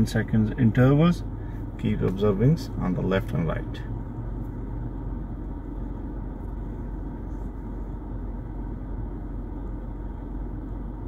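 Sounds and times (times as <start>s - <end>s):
car engine idling rumble: 0.0s - 11.0s.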